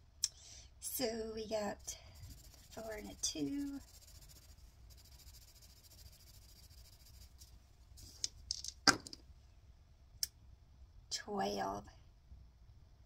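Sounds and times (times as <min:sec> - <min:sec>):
dice clicking in a hand: 0:08.2 - 0:09.2.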